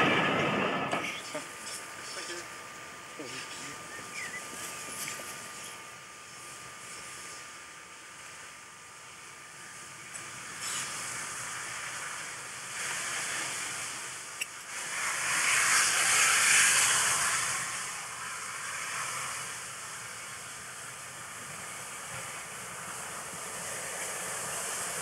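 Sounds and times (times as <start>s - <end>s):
steam locomotive hissing steam: 10.4s - 25.0s.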